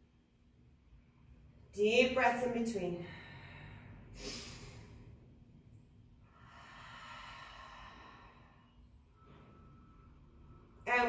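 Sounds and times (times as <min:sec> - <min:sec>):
woman taking deep breaths: 0:03.0 - 0:05.2, 0:06.2 - 0:08.9.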